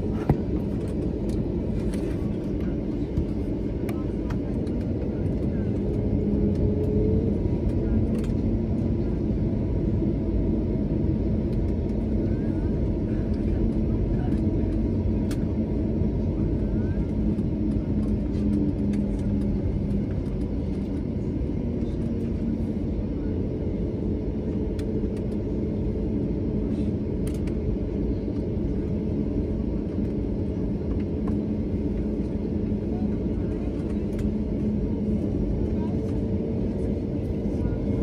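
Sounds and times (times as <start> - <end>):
airplane cabin engine drone: 0.0 - 38.0.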